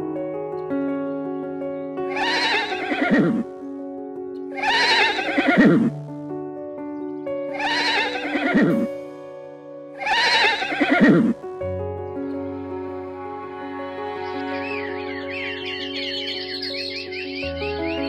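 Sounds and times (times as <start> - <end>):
background music sustained tones: 0.0 - 18.0
horse whinnying: 2.1 - 3.5, 4.6 - 5.9, 7.5 - 8.9, 10.0 - 11.4.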